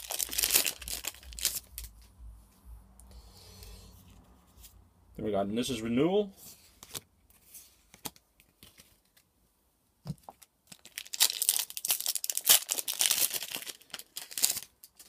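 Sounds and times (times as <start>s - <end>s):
foil wrapper tearing and crinkling: 0.0s - 2.0s, 10.7s - 15.0s.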